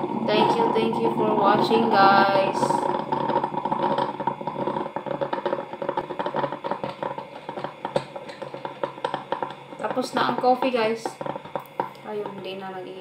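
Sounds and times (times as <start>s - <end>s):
coffee maker sputtering and gurgling: 0.0s - 13.0s.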